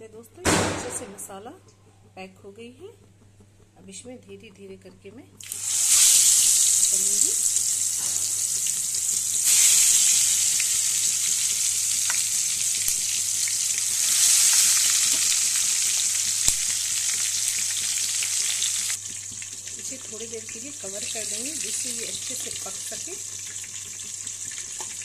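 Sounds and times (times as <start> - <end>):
vegetables sizzling in oil: 5.4 - 25.0.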